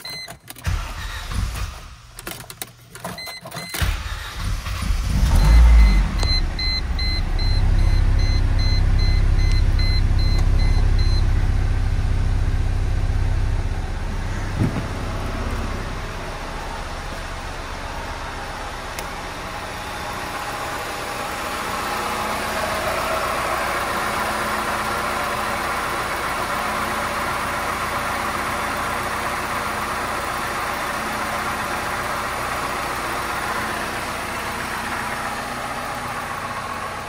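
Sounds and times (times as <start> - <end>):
dashboard warning chime beeping: 0.0 - 1.2, 5.4 - 11.6
car engine starting and idling: 0.0 - 37.0.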